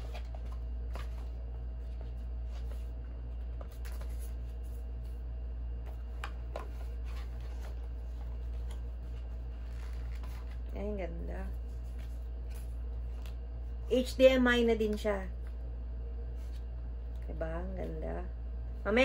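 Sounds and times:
paper and cardboard rustling: 0.0s - 4.8s, 5.9s - 10.8s
steady low hum: 0.0s - 19.0s.

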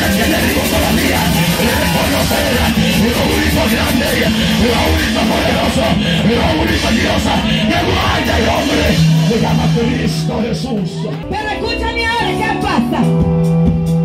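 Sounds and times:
man singing into microphone: 0.0s - 11.2s
worship music over loudspeakers: 0.0s - 13.6s.

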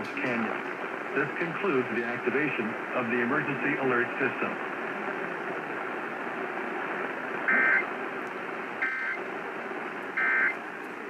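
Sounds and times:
radio static hiss: 0.0s - 11.0s
screechy two-tone digital data bursts: 8.8s - 9.2s, 10.2s - 10.5s.

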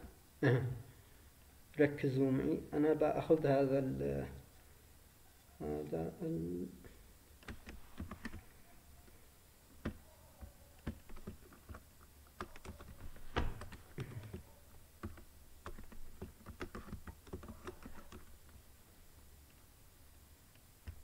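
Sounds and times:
keyboard typing: 7.4s - 18.6s.

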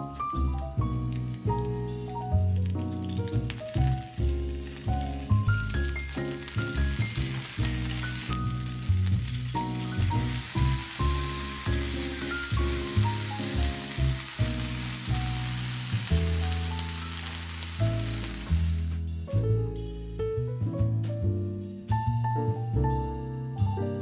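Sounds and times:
food sizzling in a frying pan: 0.0s - 19.0s
background music with bass line: 0.0s - 24.0s.

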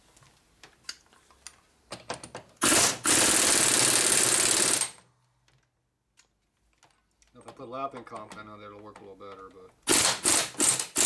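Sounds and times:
power tool spinning: 2.6s - 5.0s, 9.8s - 11.0s.

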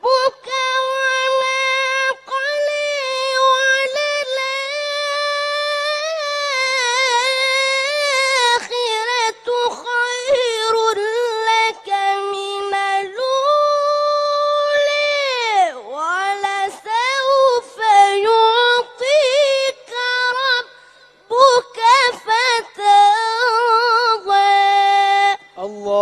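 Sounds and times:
boy chanting melodically: 0.0s - 26.0s.

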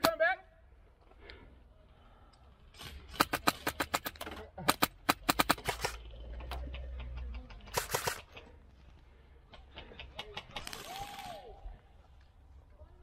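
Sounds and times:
airsoft gunshots: 2.8s - 6.0s, 7.7s - 8.4s.

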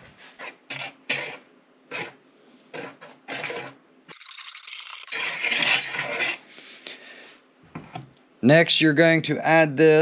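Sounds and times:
wire whisk beating batter in bowl: 0.4s - 6.4s.

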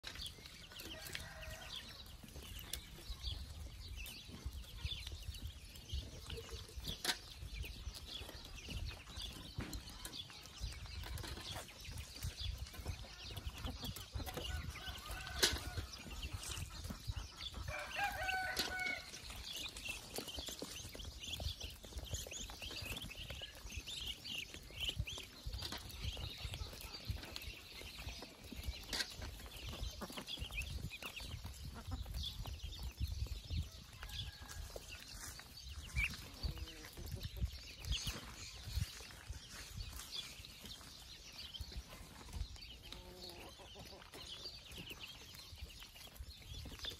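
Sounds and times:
chickens clucking: 0.0s - 46.9s
ducklings peeping: 0.0s - 46.9s.

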